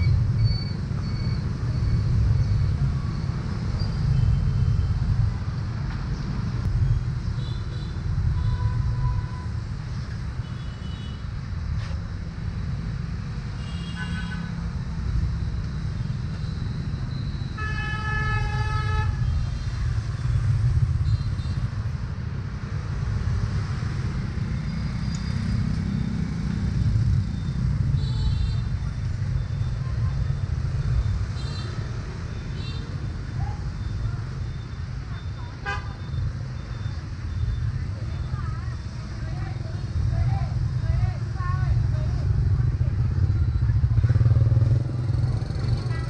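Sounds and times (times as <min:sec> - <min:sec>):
motorbike traffic rumble: 0:00.0 - 0:46.0
vehicle horn: 0:17.6 - 0:19.2, 0:35.6 - 0:36.0.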